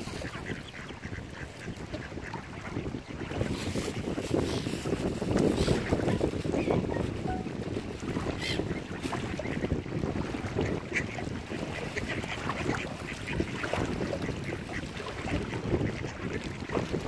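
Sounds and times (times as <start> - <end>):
ducks quacking: 0.0 - 4.6, 10.4 - 16.7
lapping water: 0.0 - 17.0
wind on microphone: 0.0 - 17.0.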